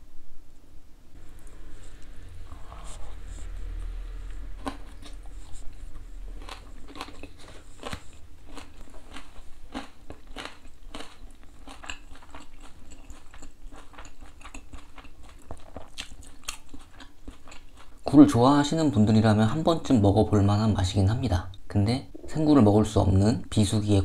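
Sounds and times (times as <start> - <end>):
person chewing crisp cracker: 4.6 - 18.2.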